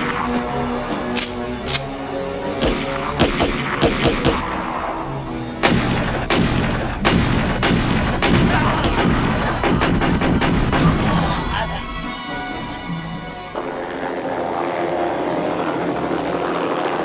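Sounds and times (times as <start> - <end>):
dramatic music score: 0.0 - 17.0
gunfire: 2.6 - 4.4, 5.6 - 11.0.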